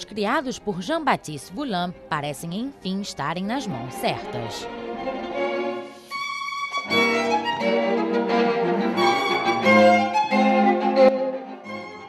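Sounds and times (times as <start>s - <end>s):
string quartet bowed chords: 3.2s - 12.0s.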